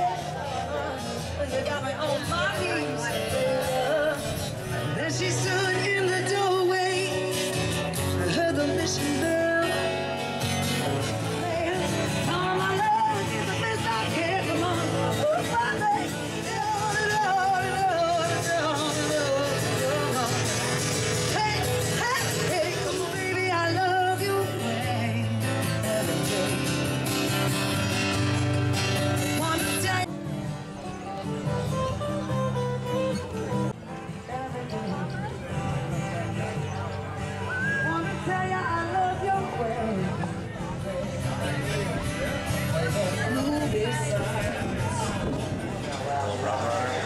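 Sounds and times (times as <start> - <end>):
person singing: 0.0 - 10.2, 10.8 - 27.9
strummed acoustic guitars: 0.0 - 47.0.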